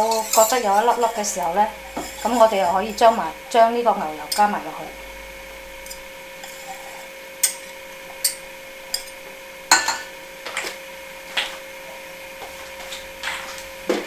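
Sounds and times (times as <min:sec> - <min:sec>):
whisk clinking on steel bowl: 0:00.0 - 0:03.3, 0:04.2 - 0:04.6, 0:05.8 - 0:10.0
faint steady hum: 0:00.0 - 0:14.0.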